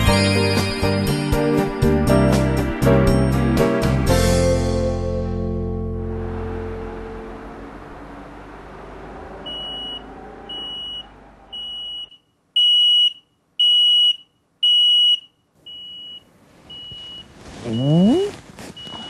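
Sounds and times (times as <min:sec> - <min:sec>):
background music: 0:00.0 - 0:07.6
smoke alarm beeping: 0:09.5 - 0:19.0.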